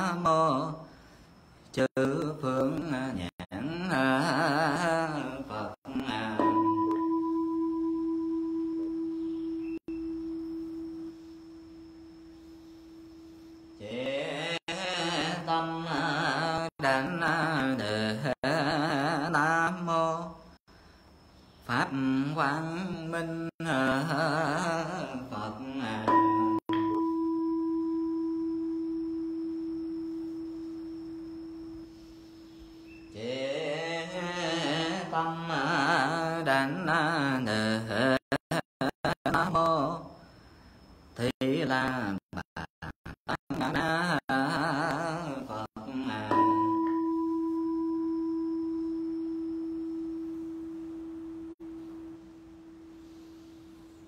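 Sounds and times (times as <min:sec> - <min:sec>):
bowl bell ringing: 0:06.3 - 0:13.7, 0:26.1 - 0:32.1, 0:46.1 - 0:52.8
temple bell ringing: 0:06.4 - 0:09.3, 0:46.3 - 0:49.1.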